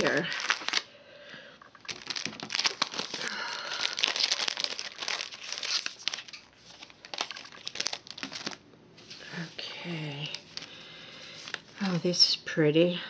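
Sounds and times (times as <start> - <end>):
paper pieces rustling: 0.0 - 0.8, 1.7 - 8.6
cellophane packet crinkling: 0.0 - 8.6, 10.1 - 11.9.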